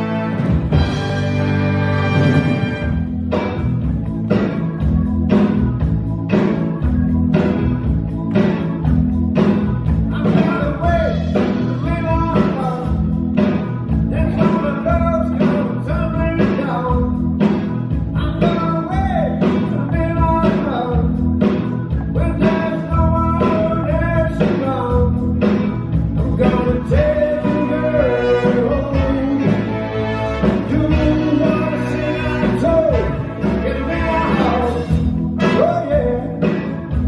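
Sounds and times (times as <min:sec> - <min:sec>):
horn section: 0:00.0 - 0:03.7, 0:26.4 - 0:36.5
drums keeping a steady beat: 0:00.0 - 0:37.0
electric guitar: 0:00.0 - 0:37.0
keyboard: 0:00.0 - 0:37.0.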